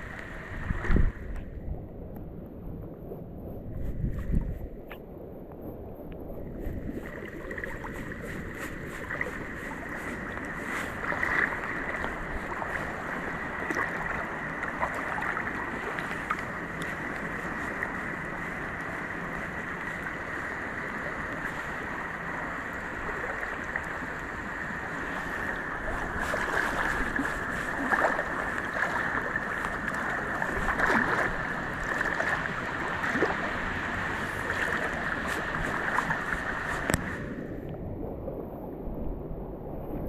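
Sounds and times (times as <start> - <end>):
river water rushing: 7.0 - 37.4.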